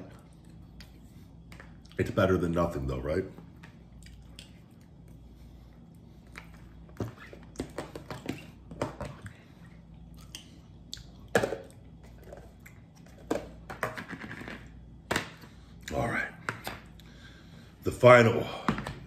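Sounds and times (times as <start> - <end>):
man chewing wetly: 3.9 - 6.8, 9.2 - 11.3.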